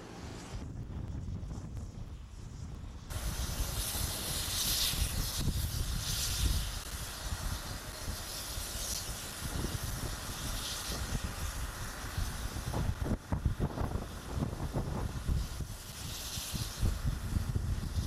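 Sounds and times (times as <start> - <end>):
steam hissing bursts: 0.0 - 18.0
wind rumbling on microphone: 0.0 - 18.0
steam locomotive starting away: 3.1 - 18.0.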